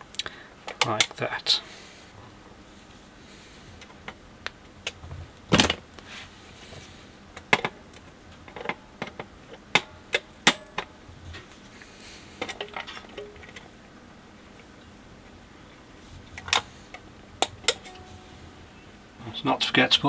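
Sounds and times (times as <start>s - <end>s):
metallic ring: 17.8s - 18.9s.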